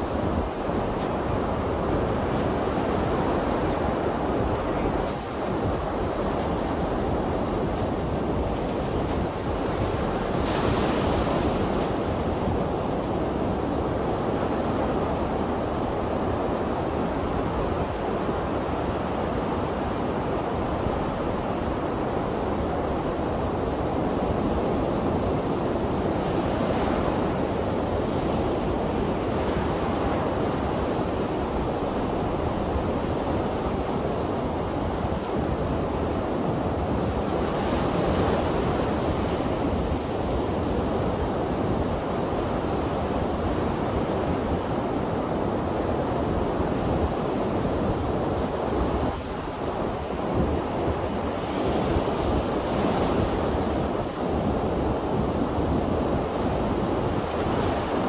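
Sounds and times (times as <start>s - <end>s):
ocean waves breaking on beach: 0.0s - 58.0s.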